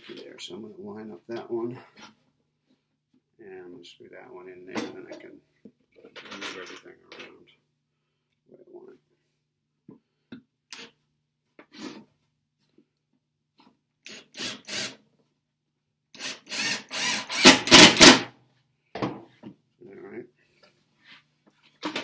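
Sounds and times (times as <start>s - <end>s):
cordless drill driving screw: 14.0s - 15.0s, 16.2s - 18.2s.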